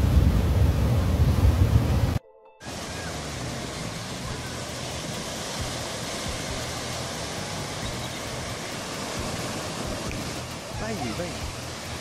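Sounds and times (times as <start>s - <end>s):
sea water rushing: 0.0s - 12.0s
wind: 0.0s - 12.0s.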